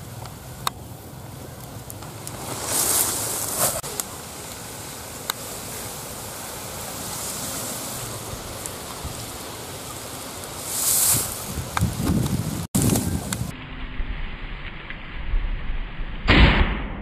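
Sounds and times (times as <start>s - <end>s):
rustling and handling noise: 1.6s - 13.5s
wind buffeting microphone: 5.7s - 13.5s.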